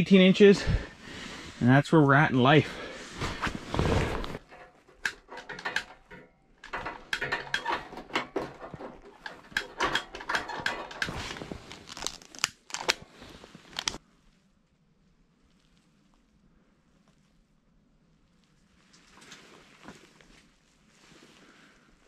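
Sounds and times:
clothing rustling: 2.5s - 14.0s
clicks and knocks of fishing gear: 3.2s - 14.0s.

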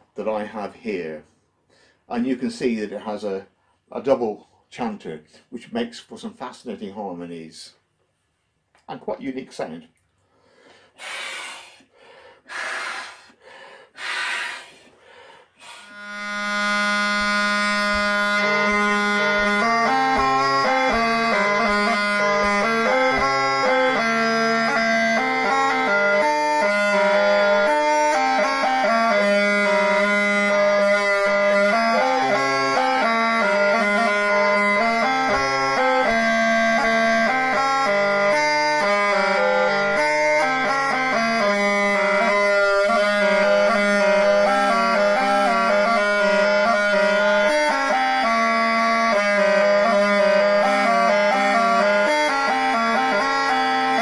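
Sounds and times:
breathy puffs: 10.2s - 16.0s
bagpipe playing a tune: 14.0s - 14.7s, 15.5s - 54.0s.

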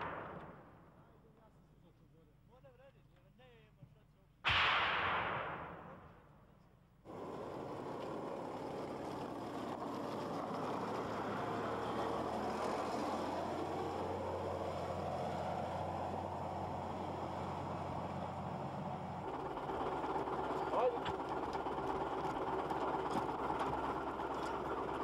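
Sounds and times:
loud bang: 0.0s - 0.9s, 4.5s - 6.3s
armoured vehicle engine driving past: 7.1s - 25.0s.

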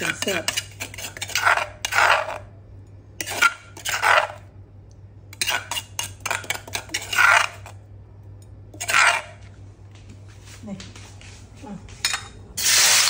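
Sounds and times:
metal ladle scraping stone mortar: 0.0s - 2.5s, 3.2s - 4.4s, 5.4s - 7.8s, 8.7s - 9.5s.

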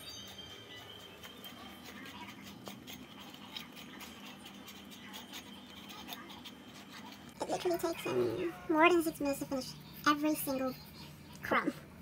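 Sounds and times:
dog licking floor: 0.2s - 8.0s.

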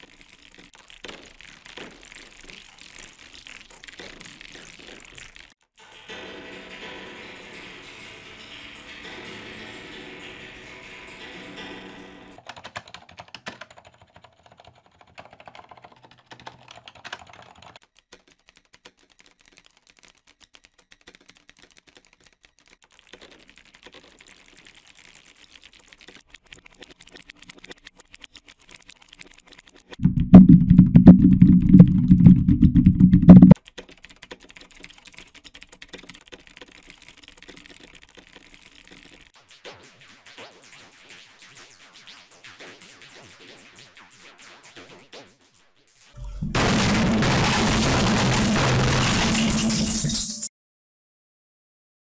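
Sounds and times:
keyboard typing with effects: 0.0s - 5.5s, 12.4s - 39.4s, 46.2s - 50.4s
low-pitched typing: 0.0s - 5.6s, 12.4s - 39.4s.

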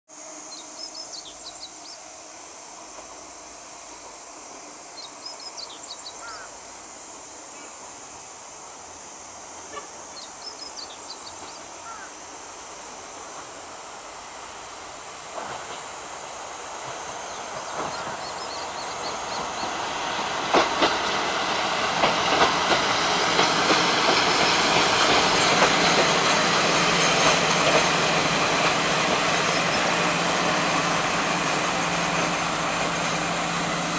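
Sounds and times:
diesel railcar engine: 0.1s - 33.9s
train wheels clicking on rails: 2.5s - 6.4s, 9.6s - 33.9s
birds chirping: 17.1s - 19.9s, 29.3s - 30.2s.

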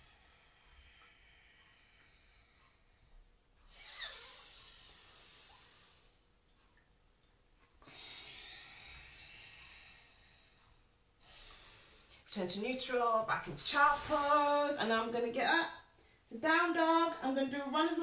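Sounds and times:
woman breathing slowly: 0.0s - 6.7s, 7.6s - 12.3s, 15.9s - 16.3s.

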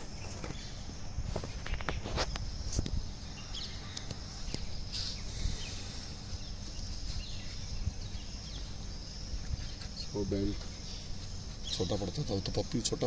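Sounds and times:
bird chirps: 0.0s - 13.0s
insect drone: 0.0s - 13.0s
wind rumble on microphone: 1.1s - 10.4s.

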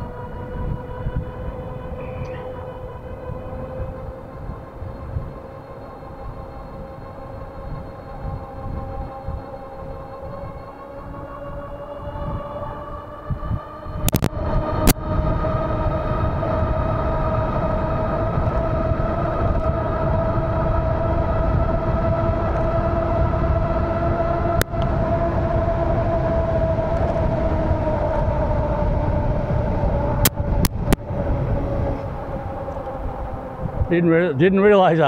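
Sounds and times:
electric motor whining: 0.0s - 34.7s
wind rushing on microphone: 0.0s - 35.0s
sharp clicks: 14.1s - 14.3s.

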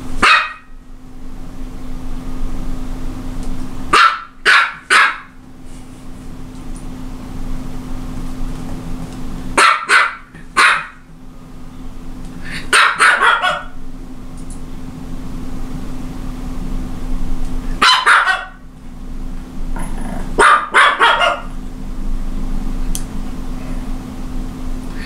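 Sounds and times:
small dog barking: 0.2s - 0.7s, 3.9s - 5.4s, 9.6s - 11.1s, 12.6s - 13.8s, 17.8s - 18.6s, 19.8s - 21.6s.

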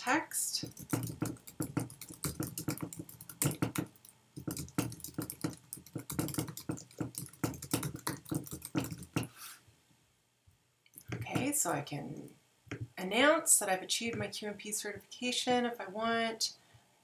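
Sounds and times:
computer keyboard typing: 0.6s - 9.3s.

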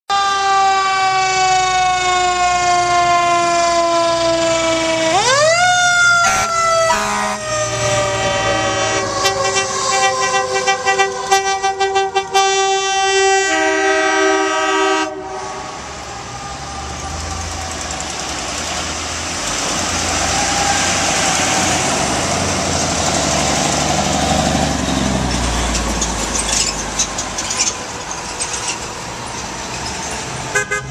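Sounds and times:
fire truck siren: 0.1s - 25.8s
vehicles passing: 0.3s - 30.9s
horn blasts: 6.2s - 15.9s, 30.5s - 30.9s.

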